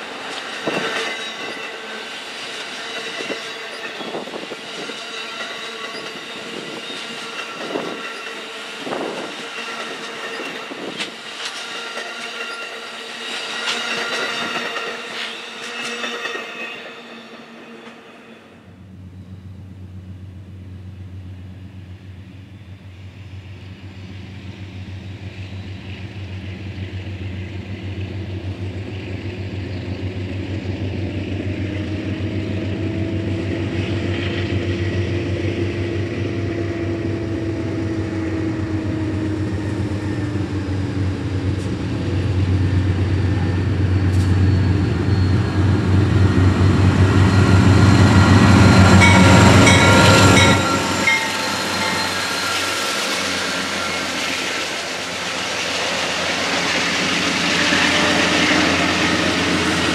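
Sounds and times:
high wheel squeal: 0.0 - 19.6, 37.7 - 59.9
diesel locomotive drone: 0.0 - 59.9.

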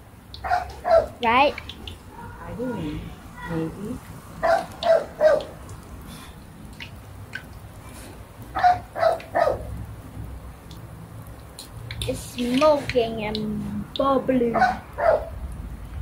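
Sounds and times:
food deep-frying in oil: 0.0 - 2.6, 3.2 - 14.3
dog barking: 0.4 - 1.2, 4.4 - 5.5, 8.6 - 9.7, 14.5 - 15.3.

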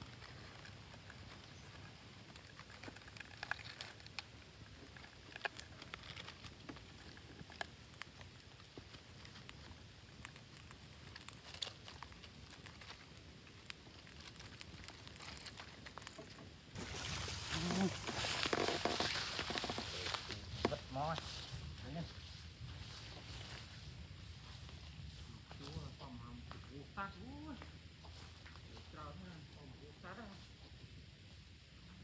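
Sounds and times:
beaks and claws scratching wood: 0.0 - 22.0
low steady hiss: 0.0 - 32.0.

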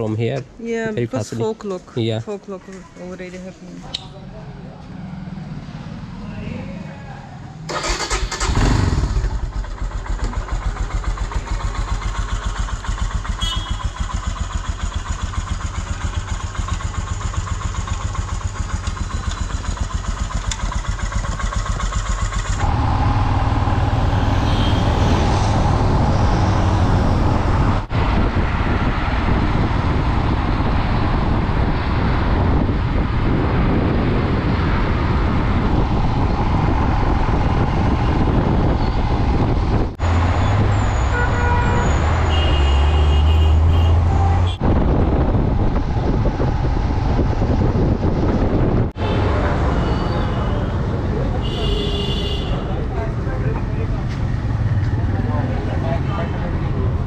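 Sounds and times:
motorcycle riding along: 4.1 - 51.6
motorcycle engine starting: 7.6 - 24.0
motorcycle engine idling: 7.8 - 23.0.

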